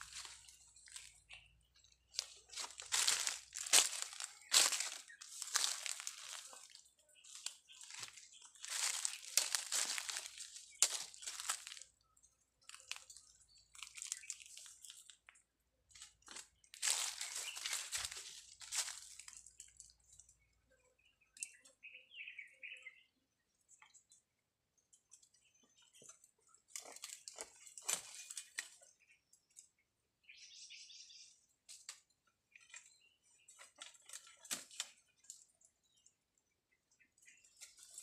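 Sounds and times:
twigs crackling and snapping: 0.0s - 12.0s, 12.6s - 20.2s, 26.7s - 29.7s, 33.5s - 35.6s, 37.5s - 38.0s
faint bird chirps: 0.0s - 15.1s, 15.9s - 26.6s, 27.6s - 31.5s.

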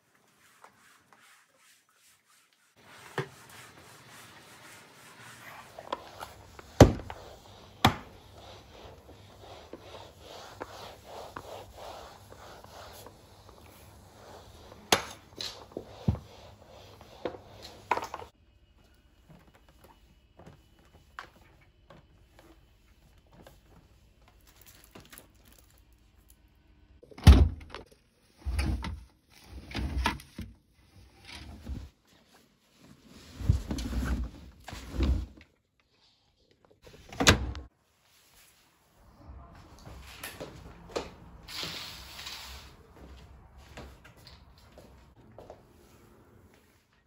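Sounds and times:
mop swishing over hard floor: 0.0s - 18.4s.

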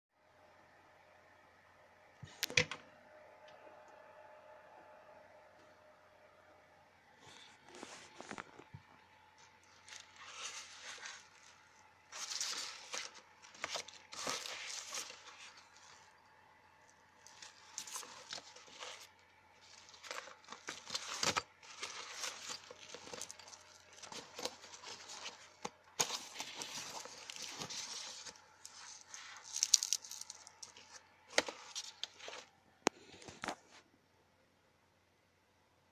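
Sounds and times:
fabric bag rustling: 9.6s - 16.2s, 17.2s - 32.5s.

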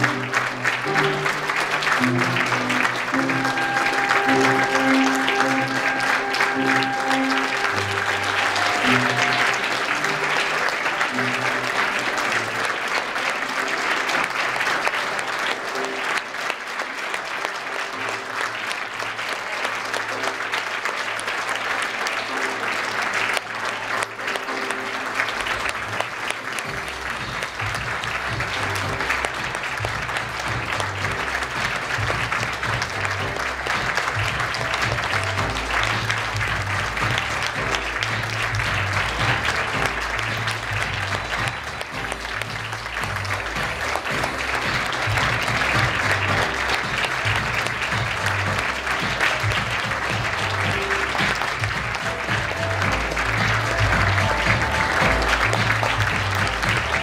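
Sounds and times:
audience applause: 0.0s - 57.0s
background music with bass line: 26.7s - 57.0s.

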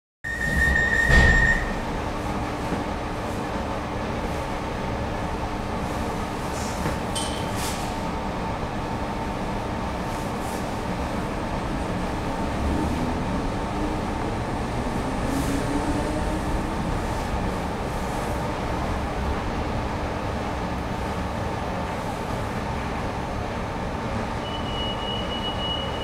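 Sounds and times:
train interior hum: 0.3s - 26.0s
high beep: 24.4s - 26.0s.

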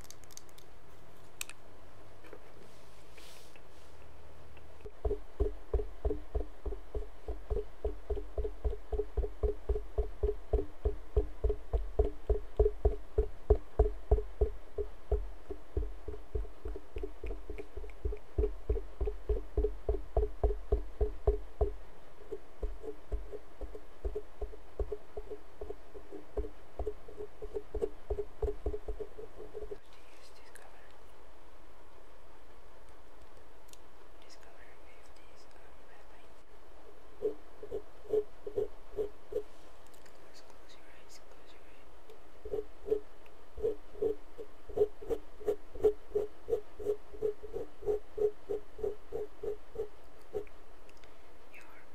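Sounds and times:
sponge tapping on microphone: 4.9s - 29.1s.

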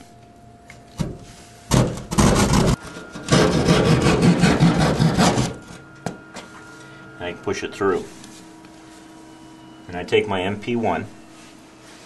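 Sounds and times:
hand saw cutting drywall: 1.7s - 5.6s.

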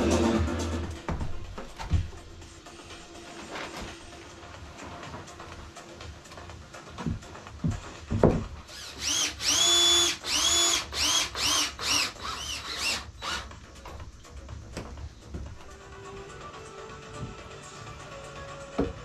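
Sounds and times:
dull knocks of wood: 7.0s - 8.6s
cordless drill driving screws: 8.7s - 13.5s.

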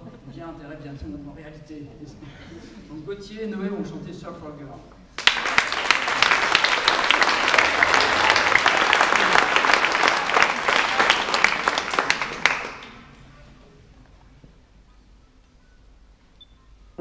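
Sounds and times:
audience applauding: 5.2s - 13.2s.

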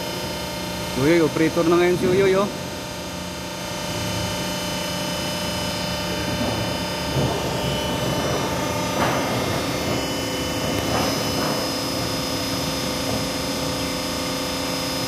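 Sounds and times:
machine mechanical hum: 0.0s - 15.0s
metal sheet knocks: 6.2s - 13.9s.

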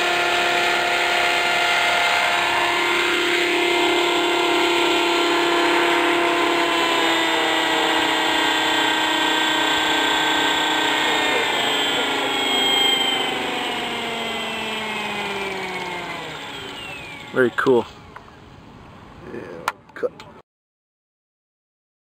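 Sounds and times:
model helicopter rotor whine: 0.0s - 18.4s.

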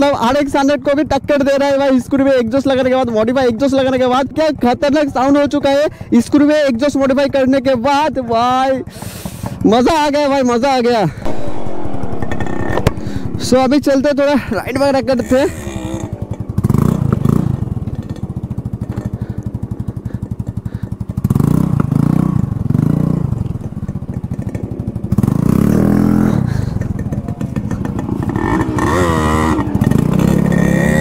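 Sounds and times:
scooter engine revving: 11.2s - 31.0s.

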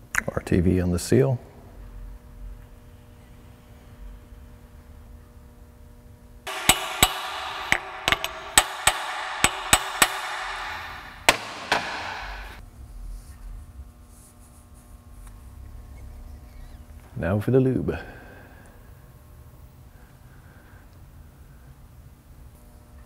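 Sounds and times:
hammer blows on metal: 6.5s - 12.6s
metallic ringing: 6.5s - 12.6s.

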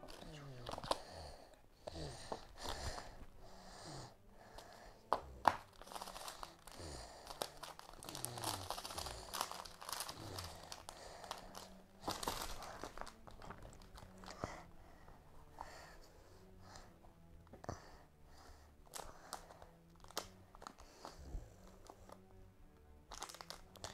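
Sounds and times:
plastic packet crinkling: 0.0s - 1.1s, 5.5s - 14.4s, 18.9s - 20.8s, 23.1s - 23.9s.

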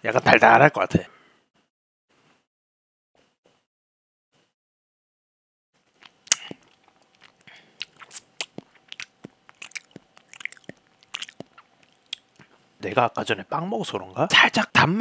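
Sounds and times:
lip smacking and tongue clicks: 5.9s - 12.5s.

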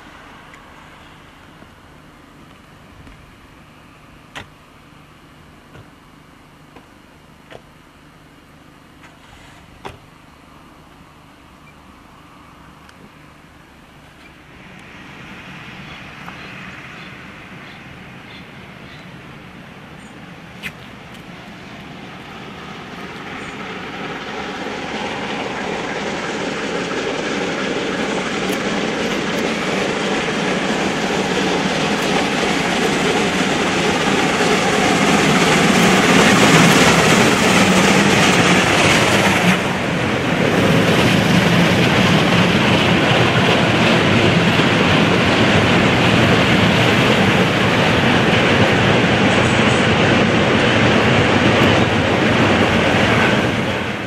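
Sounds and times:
steam locomotive passing: 0.0s - 6.6s, 10.5s - 54.0s.

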